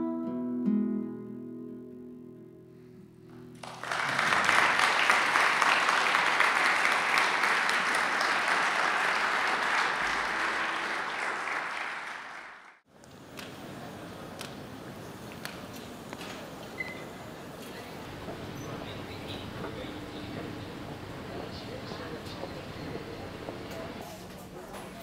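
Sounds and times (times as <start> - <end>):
acoustic guitar notes: 0.0 - 3.6
audience applauding: 3.6 - 12.8, 18.0 - 24.0.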